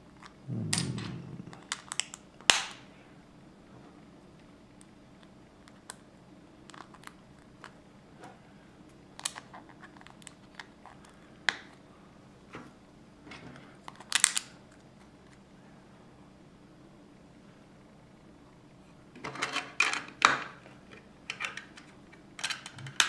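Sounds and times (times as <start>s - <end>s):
plastic bricks clicking and snapping: 21.3s - 23.0s.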